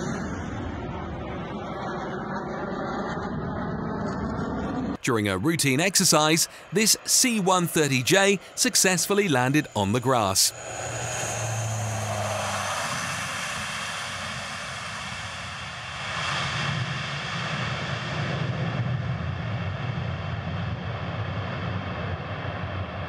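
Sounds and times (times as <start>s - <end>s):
turboprop engines running: 5.0s - 19.8s
low pulsing: 10.5s - 15.4s.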